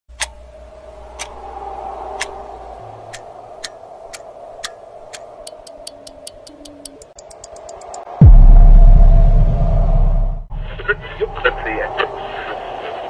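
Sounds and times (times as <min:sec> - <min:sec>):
clock ticking: 0:00.1 - 0:00.4, 0:03.1 - 0:08.1
steady low hum: 0:08.2 - 0:13.0.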